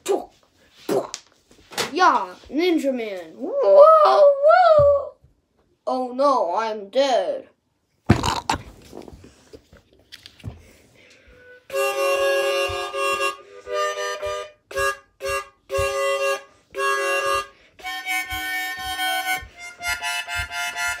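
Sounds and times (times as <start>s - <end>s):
harmonica playing chords: 11.2s - 21.0s.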